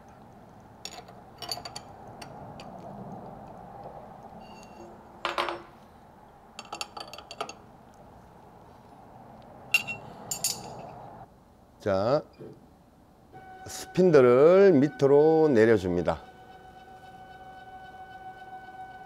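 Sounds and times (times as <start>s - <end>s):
faint steady hum: 0.0s - 19.0s
metal clicks and clinks: 0.8s - 5.6s, 6.6s - 7.6s, 9.7s - 11.0s.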